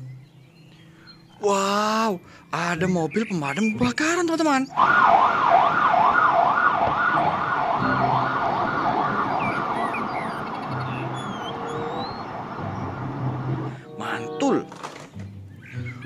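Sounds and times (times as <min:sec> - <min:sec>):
fire engine siren yelping: 0:04.7 - 0:13.8.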